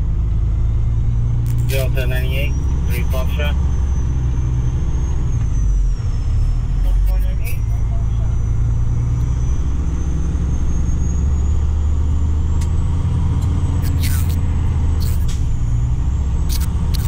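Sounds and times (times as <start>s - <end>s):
road noise: 0.0s - 17.0s
truck diesel engine droning: 0.0s - 17.0s
short crackly bursts: 16.5s - 17.0s.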